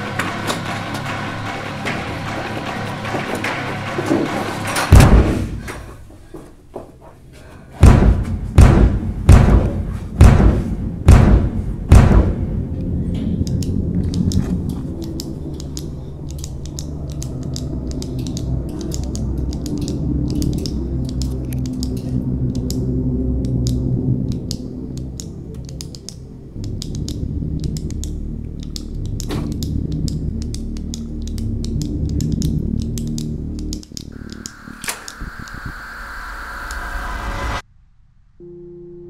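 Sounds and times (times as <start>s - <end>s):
tense film score drone: 0.0s - 5.9s, 7.9s - 39.0s
door slamming shut: 0.2s - 5.7s
heavy thumps: 7.8s - 12.7s.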